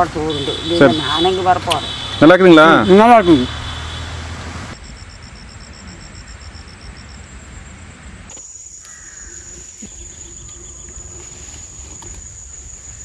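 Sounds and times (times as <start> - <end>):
insects chirping: 0.0 - 13.0
high insect trill: 4.8 - 13.0.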